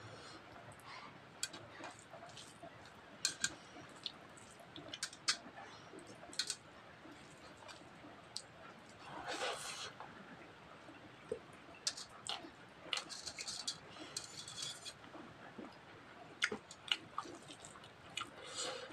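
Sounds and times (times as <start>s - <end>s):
chewing and mouth clicks: 16.4s - 18.8s.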